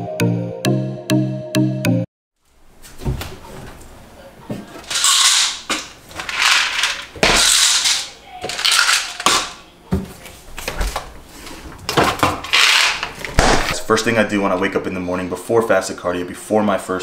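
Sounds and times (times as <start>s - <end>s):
kitchen rattles and clatters: 3.0s - 13.8s
cabinet doors thudding: 13.0s - 13.8s.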